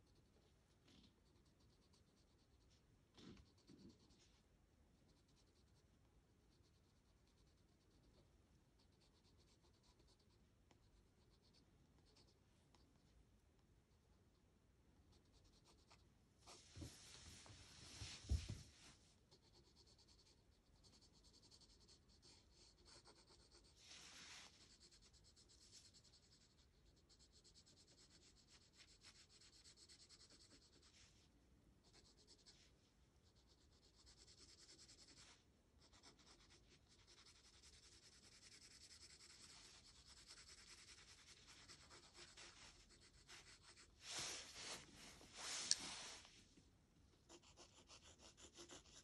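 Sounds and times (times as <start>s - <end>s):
pencil shading on paper: 1.2s - 2.7s, 8.8s - 12.4s, 19.3s - 31.0s, 33.2s - 43.9s, 47.3s - 49.0s.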